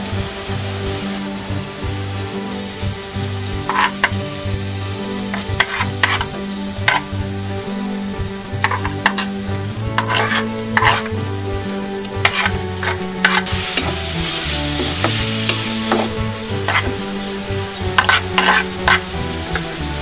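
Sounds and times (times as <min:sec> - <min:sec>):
vegetables sizzling in a wok: 0:00.0 - 0:20.0
metal spoon scraping wok: 0:03.6 - 0:04.4, 0:05.2 - 0:07.2, 0:08.5 - 0:20.0
spoon clinking on pan: 0:03.7 - 0:04.2, 0:05.3 - 0:07.1, 0:08.6 - 0:09.3, 0:12.2 - 0:14.0, 0:18.0 - 0:19.7.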